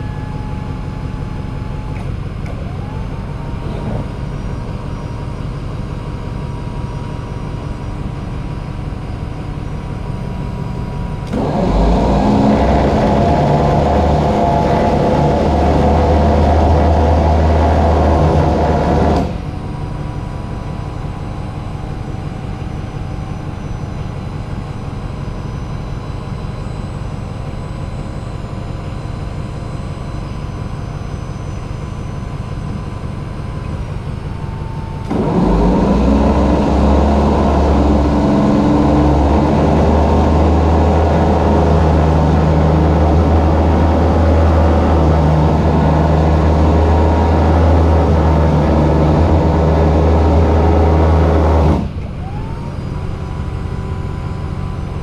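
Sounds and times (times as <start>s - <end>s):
motor rumbling: 0.0s - 55.0s.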